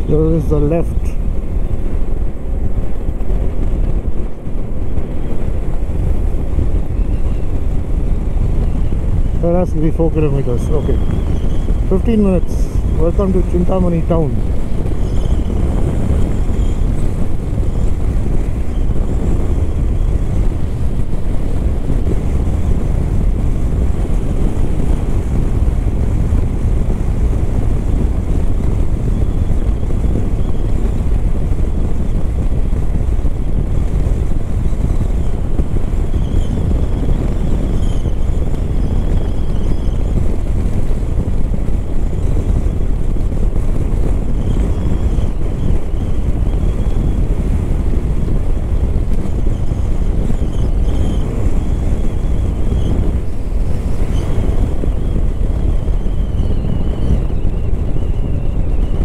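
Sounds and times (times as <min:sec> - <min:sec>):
motorcycle engine cruising: 0:00.0 - 0:59.0
wind rush on microphone: 0:00.0 - 0:59.0.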